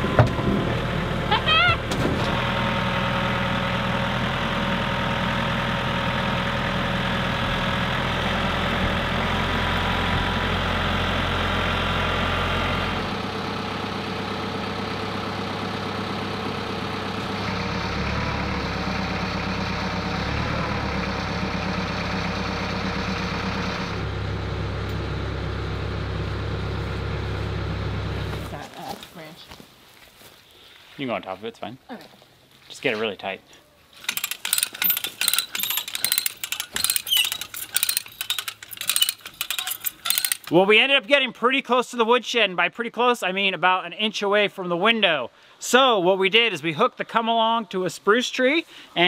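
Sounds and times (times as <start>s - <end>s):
tractor engine running: 0.0s - 28.8s, 34.0s - 41.0s.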